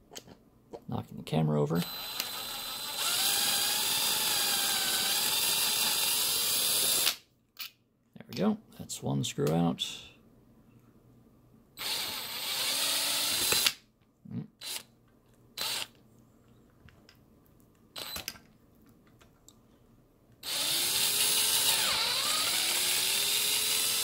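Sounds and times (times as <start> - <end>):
cordless drill motor whirring: 1.8 - 7.2, 11.8 - 13.7, 15.6 - 15.9, 18.0 - 18.3, 20.4 - 24.0
drill clicks: 1.8 - 7.2, 11.8 - 13.8, 15.6 - 15.9, 18.0 - 18.4, 20.4 - 24.0.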